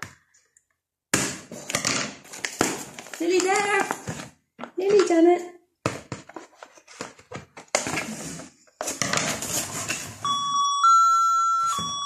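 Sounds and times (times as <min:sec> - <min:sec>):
cardboard scraping and rustling: 0:06.2 - 0:10.2.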